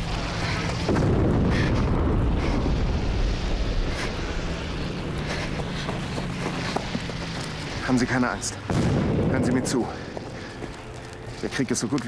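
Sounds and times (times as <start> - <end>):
steady low rumble: 0.0 - 12.0
deep explosion: 0.9 - 4.8, 8.7 - 10.2.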